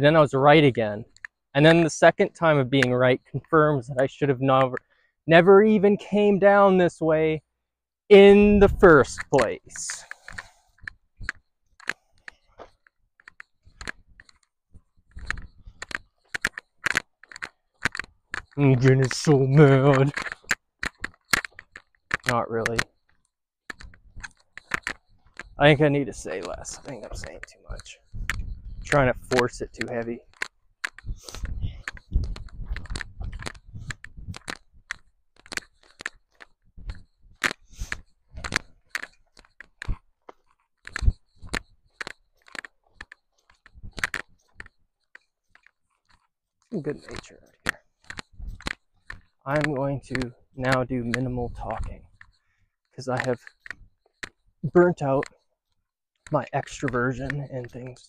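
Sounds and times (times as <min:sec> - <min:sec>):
footsteps crunching on rough ground: 0:23.7 - 0:44.8.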